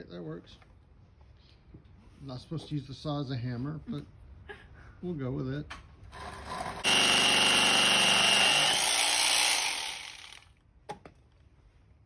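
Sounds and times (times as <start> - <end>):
jigsaw sawing through wood: 6.2 - 10.5.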